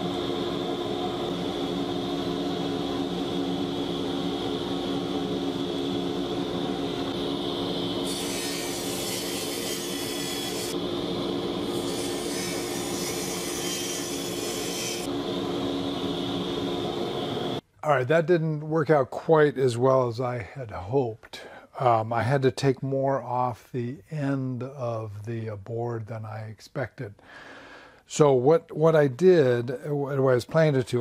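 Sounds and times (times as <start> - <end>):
saw motor hum: 0.0 - 17.6
saw blade cutting wood: 8.0 - 10.8, 11.6 - 15.1.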